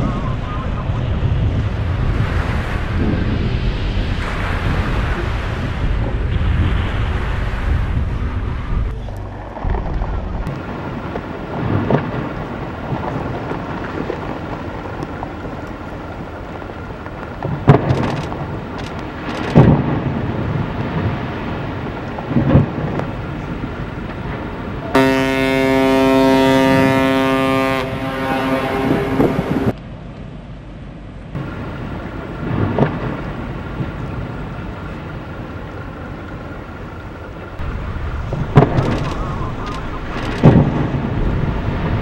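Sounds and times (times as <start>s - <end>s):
heavy thunder-like booms: 0.0s - 24.9s, 31.4s - 34.6s, 37.6s - 42.0s
deep rumbling: 0.0s - 29.8s, 31.3s - 42.0s
steady horn-like tone: 24.9s - 29.7s.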